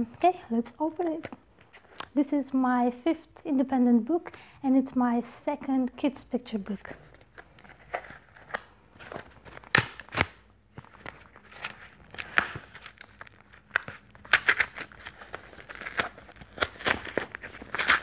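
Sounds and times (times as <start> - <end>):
cardboard tearing and rustling: 7.6 - 18.0.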